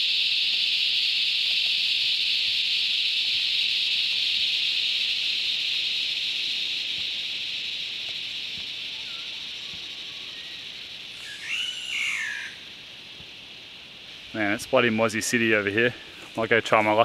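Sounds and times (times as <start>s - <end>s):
cicadas buzzing: 0.0s - 17.0s
bird call: 8.0s - 12.7s.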